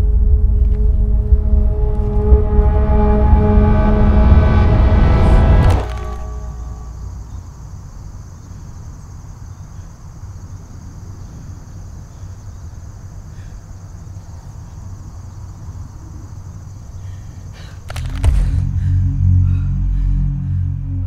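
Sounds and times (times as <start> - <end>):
low drone: 0.0 - 7.7, 17.9 - 21.0
insects trilling: 5.7 - 20.5.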